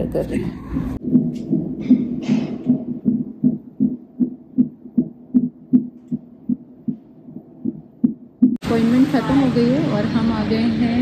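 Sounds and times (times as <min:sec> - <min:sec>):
fetal heartbeat through doppler speaker: 0:00.6 - 0:08.6.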